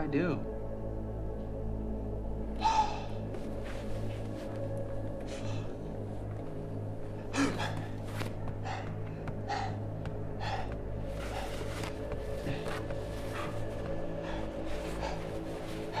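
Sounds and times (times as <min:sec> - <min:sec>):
low drone: 0:00.0 - 0:16.0
man gasping for breath: 0:07.2 - 0:16.0.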